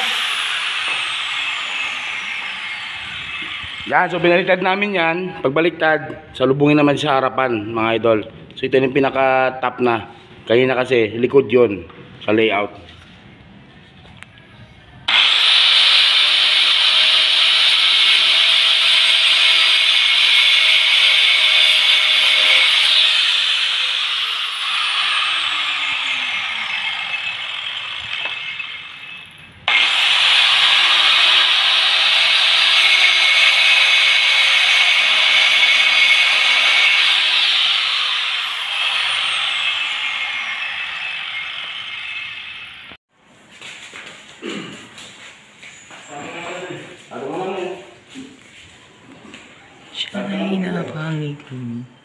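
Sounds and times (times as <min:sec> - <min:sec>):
angle grinder cutting stone: 0:00.0 - 0:04.6, 0:15.1 - 0:43.0.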